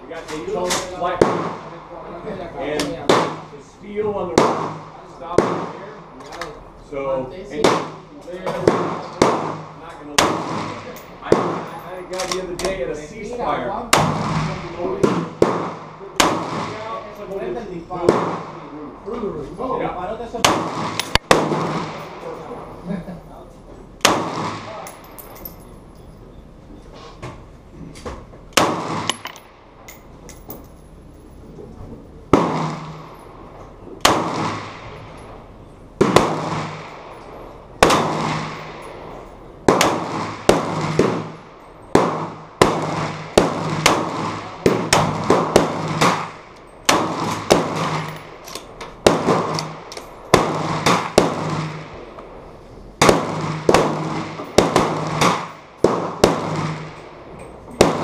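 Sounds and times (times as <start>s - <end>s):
rifle shots: 0.7s - 1.7s, 2.9s - 3.5s, 4.3s - 5.9s, 7.6s - 12.4s, 13.9s - 17.0s, 18.0s - 18.7s, 20.4s - 22.3s, 24.0s - 24.9s, 28.5s - 29.5s, 32.3s - 33.2s, 34.0s - 35.2s, 36.0s - 52.2s, 53.0s - 58.0s.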